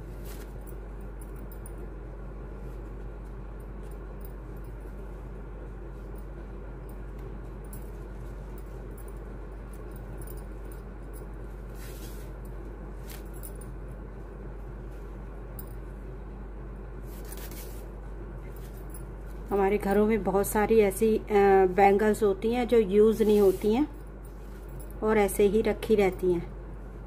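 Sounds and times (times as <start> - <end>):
rustles and clicks of craft materials: 0.0 - 1.9, 2.6 - 15.9, 17.0 - 20.0
low background hum: 0.0 - 27.0.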